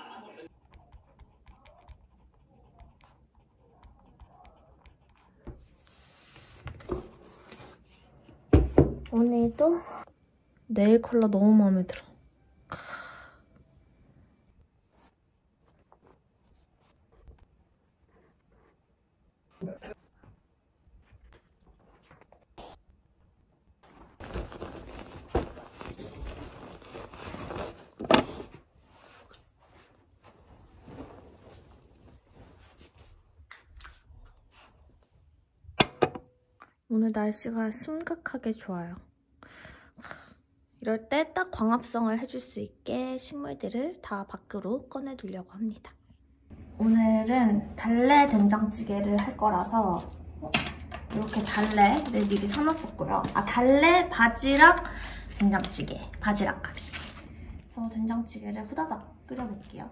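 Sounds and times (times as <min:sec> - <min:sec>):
pen scratching on paper: 0:00.5 - 0:07.0
bedding rustling: 0:23.8 - 0:33.3.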